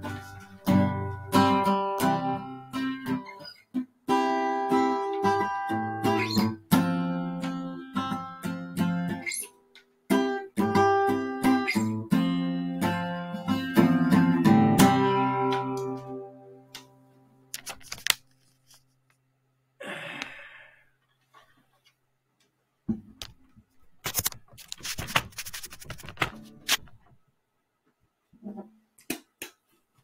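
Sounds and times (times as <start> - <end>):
acoustic guitar chord ringing: 12.1 - 17.1
recording device handling noise: 17.5 - 19.3, 21.0 - 27.2.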